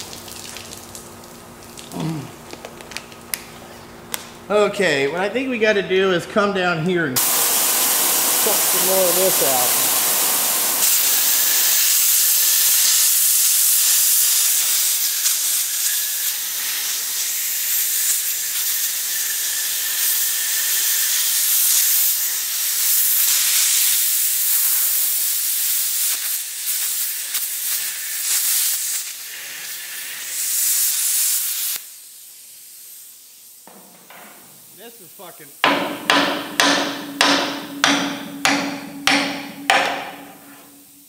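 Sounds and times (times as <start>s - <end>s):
plasma cutter hissing: 7.2s - 33.6s.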